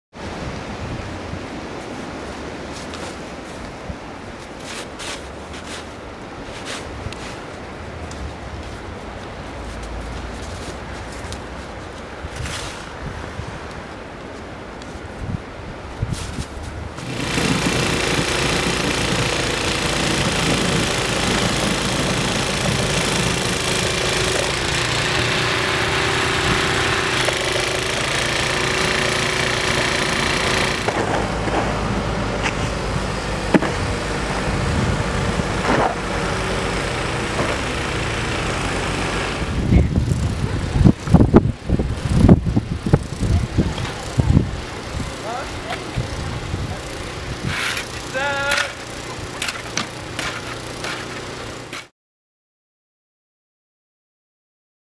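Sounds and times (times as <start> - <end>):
plow pushing snow: 0.2 - 15.1, 16.0 - 51.9
shovel scraping and knocking: 4.4 - 13.0, 16.1 - 33.8, 35.6 - 36.2, 47.4 - 51.9
loader engine running: 16.8 - 51.9.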